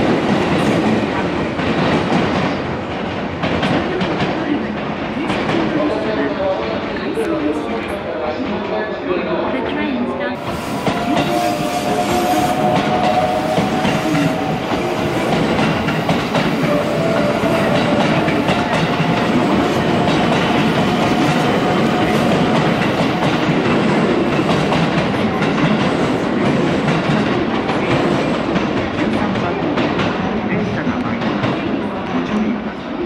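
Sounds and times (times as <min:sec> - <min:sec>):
train motor whine: 0:10.5 - 0:15.3.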